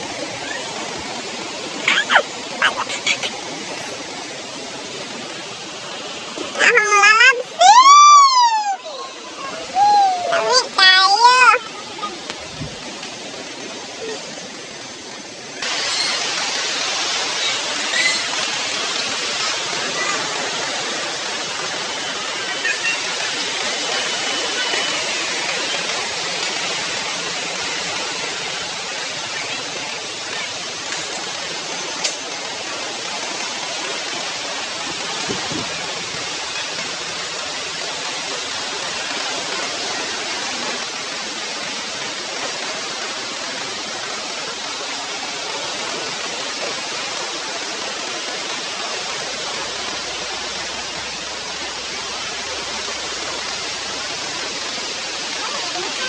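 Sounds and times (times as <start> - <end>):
sea water rushing: 0.0 - 56.0.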